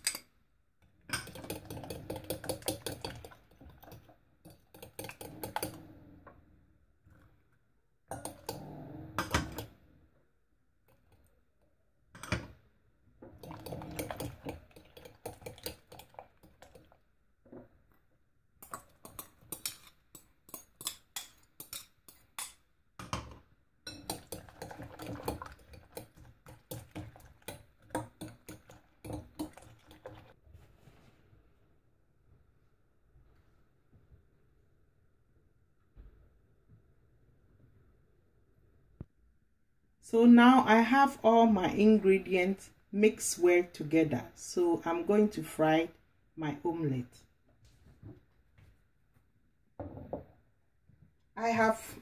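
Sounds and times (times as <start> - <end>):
fork beating eggs: 1.2 - 5.8, 8.1 - 8.6, 13.4 - 17.0, 18.6 - 23.2, 23.9 - 30.4
fork scraping glass bowl: 4.5 - 5.8, 13.4 - 16.1, 18.6 - 22.5.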